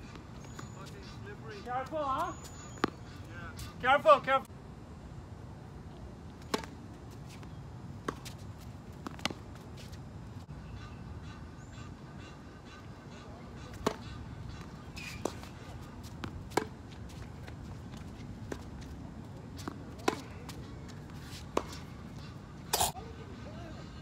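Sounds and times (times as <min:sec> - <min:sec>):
tennis balls struck by rackets: 0:01.8 - 0:03.1, 0:06.4 - 0:06.8, 0:13.7 - 0:14.0, 0:14.6 - 0:16.8, 0:19.6 - 0:21.9
tennis balls bouncing on hard court: 0:14.6 - 0:17.0, 0:19.6 - 0:21.8.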